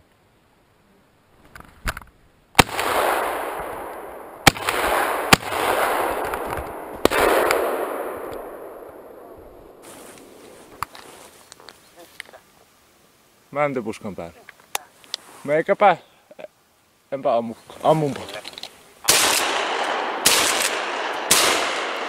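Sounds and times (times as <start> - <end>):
shotgun shots echoing: 2.6 - 10.4, 19.1 - 22.0.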